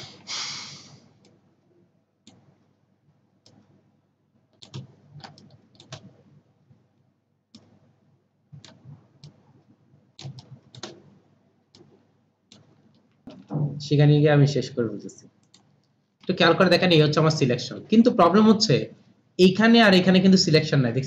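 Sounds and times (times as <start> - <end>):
mouse and keyboard clicks: 10.2 - 11.0, 12.5 - 13.5.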